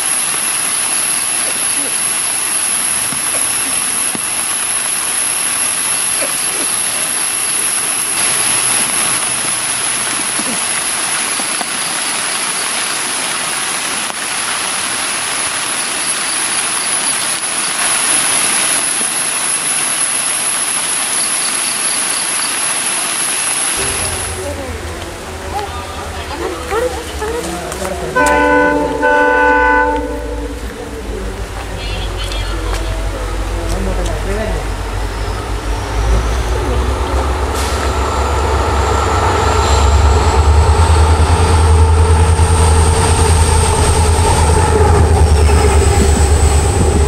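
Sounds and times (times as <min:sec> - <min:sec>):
rain falling on trees: 0:00.0 - 0:39.4
high-pitched whine: 0:23.5 - 0:47.0.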